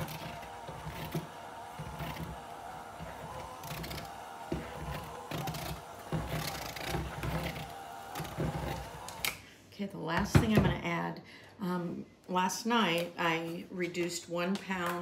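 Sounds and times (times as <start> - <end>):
hand mixer motor whine: 0.0 - 9.4.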